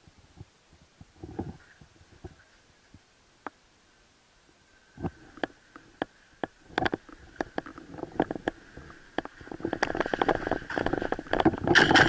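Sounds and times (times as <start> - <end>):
footsteps crunching on rubble: 6.4 - 12.0.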